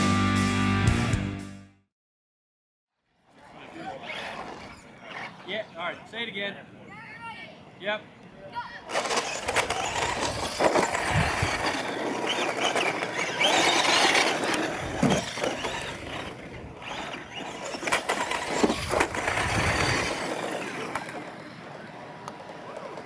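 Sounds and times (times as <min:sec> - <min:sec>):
model truck motors and tyres: 0:03.2 - 0:06.1, 0:08.9 - 0:23.0.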